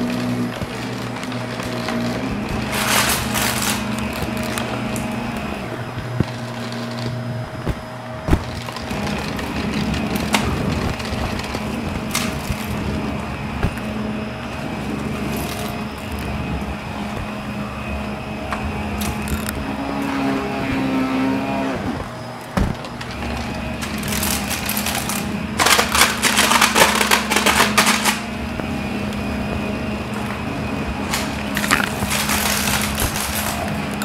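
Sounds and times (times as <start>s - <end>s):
crackling rattles: 0.0s - 17.5s, 18.4s - 19.7s, 21.9s - 30.4s, 31.0s - 34.0s
vacuum cleaner running: 0.0s - 34.0s.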